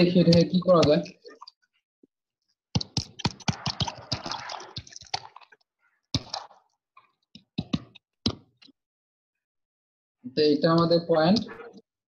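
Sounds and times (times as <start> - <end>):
rapid clicking and scratching: 2.7 - 6.7.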